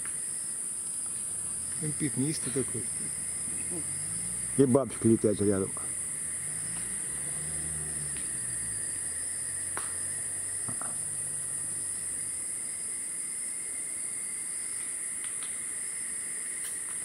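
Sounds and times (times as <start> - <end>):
high-pitched insect chorus: 0.0 - 17.0.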